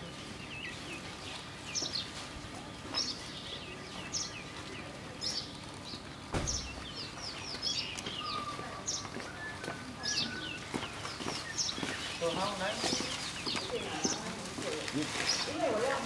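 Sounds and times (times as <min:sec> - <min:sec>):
birds chattering: 0:00.0 - 0:16.0
sharp knock: 0:06.3 - 0:06.7.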